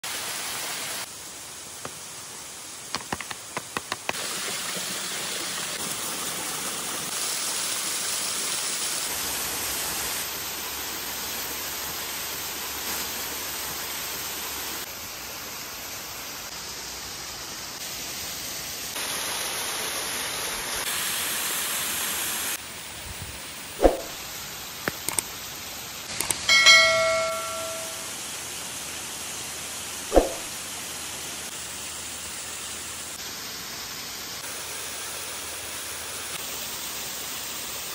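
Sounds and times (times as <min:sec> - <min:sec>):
bright bell-like chime: 0:26.5 - 0:28.1.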